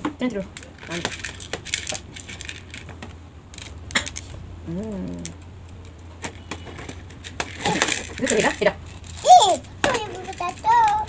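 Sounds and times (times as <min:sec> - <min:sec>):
person humming: 0:04.6 - 0:05.4.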